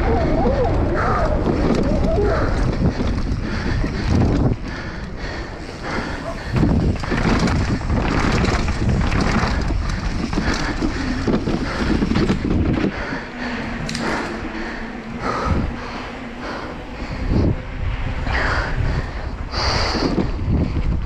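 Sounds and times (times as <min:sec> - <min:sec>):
mountain bike rattling and knocking: 0:00.0 - 0:17.6
wind buffeting microphone: 0:00.0 - 0:21.0.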